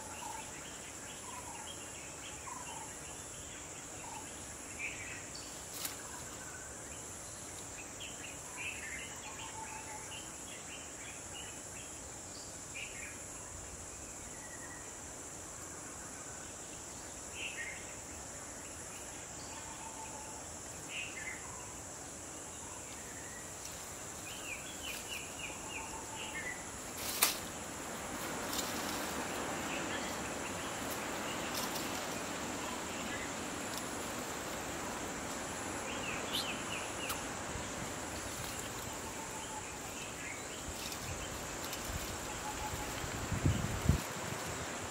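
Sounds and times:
insect chorus: 0.0s - 44.9s
broad hiss: 21.9s - 44.9s.

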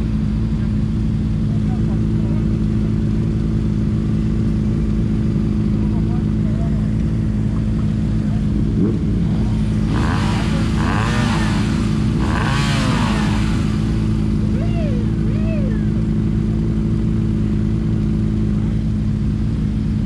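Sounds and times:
vehicle engine running: 0.0s - 20.0s
voices: 0.6s - 3.4s, 5.5s - 16.3s.

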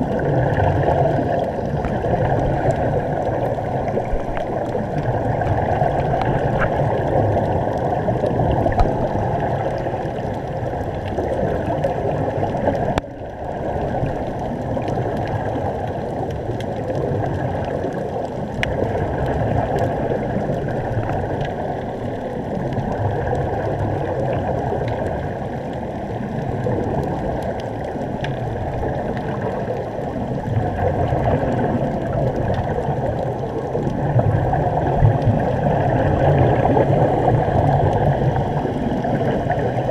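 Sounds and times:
air bubbling underwater: 0.0s - 39.9s
faint clicks: 26.6s - 29.9s.

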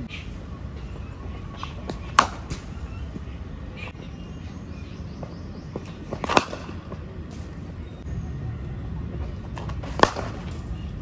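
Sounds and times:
outdoor background noise: 0.0s - 11.0s
cricket bat striking ball: 6.1s - 7.0s, 9.8s - 10.5s.

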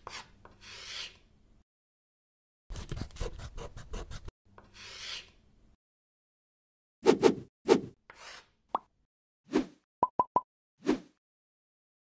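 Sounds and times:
marker scribbling on paper: 2.7s - 5.3s.

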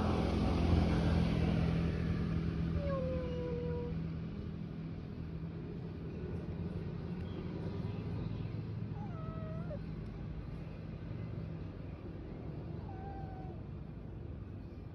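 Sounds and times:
steady low rumble: 0.0s - 14.9s
cat meowing: 9.0s - 9.8s, 12.8s - 13.6s.

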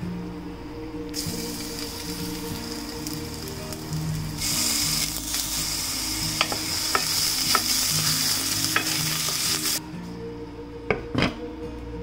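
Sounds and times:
paste sizzling in hot oil: 1.2s - 9.8s.

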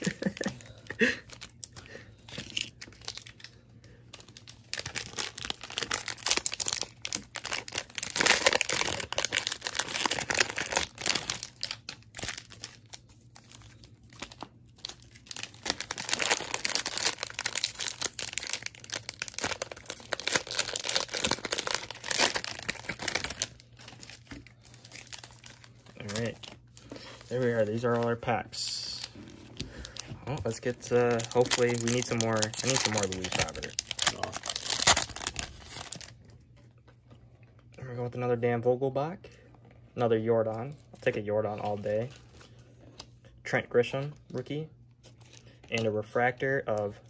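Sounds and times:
plastic wrappers crinkling and tearing: 0.0s - 36.9s.

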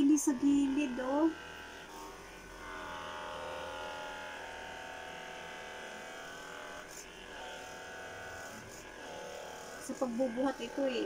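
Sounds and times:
massage gun motor buzz: 0.0s - 11.0s.

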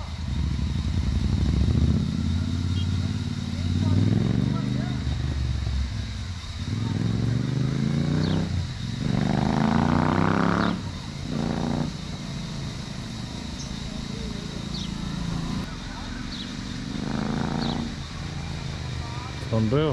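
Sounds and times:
motorcycle engine revving: 0.0s - 19.9s.

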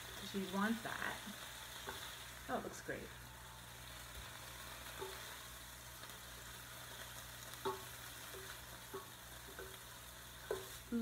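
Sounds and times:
chicken sizzling in a pan: 0.0s - 11.0s
wooden spatula knocking on pan: 5.0s - 5.3s, 7.6s - 10.8s.

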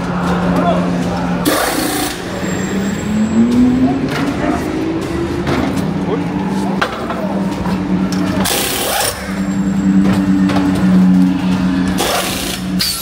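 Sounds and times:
pneumatic tool hiss: 12.0s - 13.0s.

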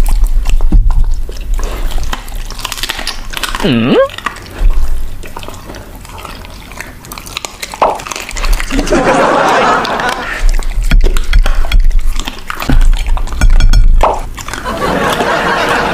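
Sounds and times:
dog chewing and licking: 0.0s - 15.9s
low thumps: 10.8s - 14.3s.

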